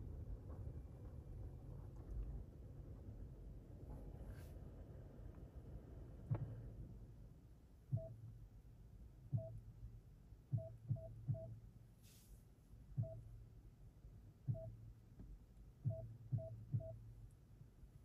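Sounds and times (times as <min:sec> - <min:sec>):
short electronic beeps: 0:07.9 - 0:08.2, 0:09.3 - 0:09.6, 0:10.5 - 0:11.6, 0:13.0 - 0:13.3, 0:14.5 - 0:14.8, 0:15.9 - 0:17.0.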